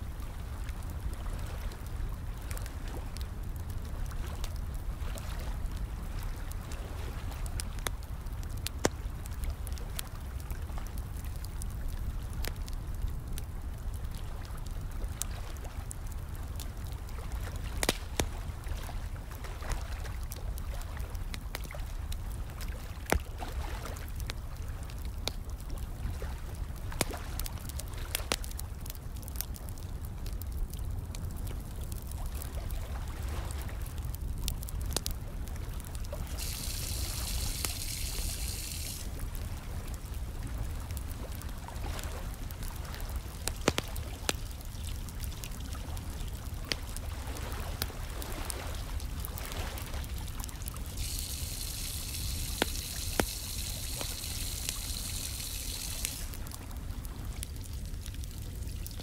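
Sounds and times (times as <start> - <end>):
fire crackling and popping: 0.0 - 59.0
water pouring hiss: 36.2 - 39.2, 50.8 - 56.5
water trickling: 36.2 - 39.2, 50.7 - 56.5.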